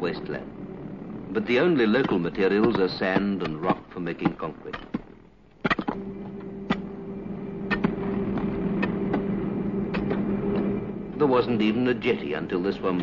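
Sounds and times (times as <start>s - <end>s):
machine running with low hum: 0.0s - 13.0s
irregular clicks and knocks: 1.9s - 6.9s, 7.7s - 9.3s.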